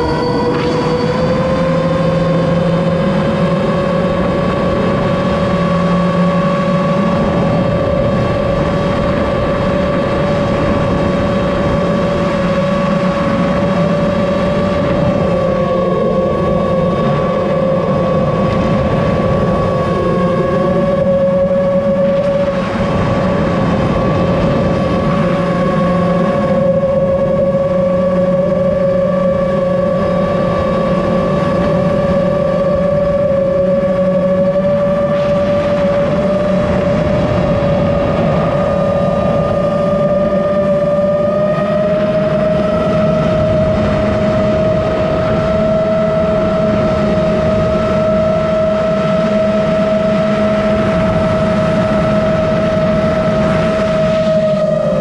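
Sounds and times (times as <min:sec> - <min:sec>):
drone motors whining: 0:00.0 - 0:55.0.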